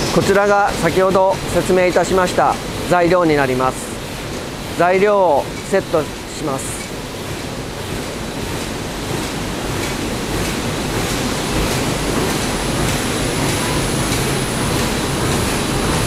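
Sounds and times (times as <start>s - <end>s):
machines mechanical din: 0.0s - 2.5s
high steady whine: 0.0s - 6.9s.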